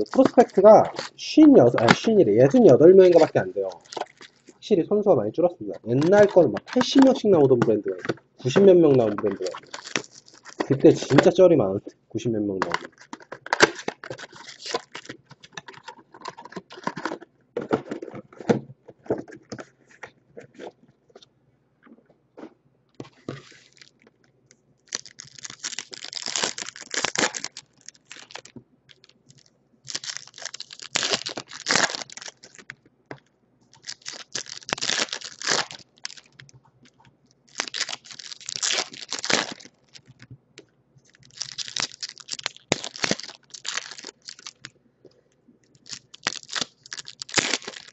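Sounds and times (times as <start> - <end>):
wrapper tearing rips: 0.0 - 4.5, 5.9 - 7.3, 8.4 - 11.4, 12.7 - 15.9, 24.9 - 32.7, 33.7 - 36.5, 37.5 - 40.3, 41.1 - 44.7, 45.8 - 47.9
wrapper crinkling: 0.0 - 4.6, 5.8 - 11.4, 12.6 - 17.2, 23.1 - 24.2, 24.8 - 40.3, 41.0 - 44.7, 45.8 - 47.9.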